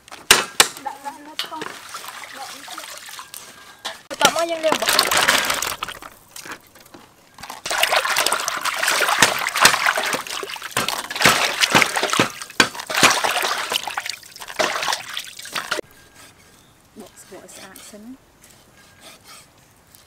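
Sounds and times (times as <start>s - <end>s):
water dribbling: 1.4s - 15.8s
hands splashing in water: 7.6s - 15.8s.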